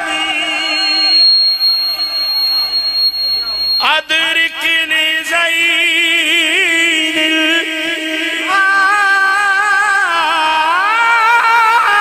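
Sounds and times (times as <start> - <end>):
man singing unaccompanied: 3.8 - 12.0.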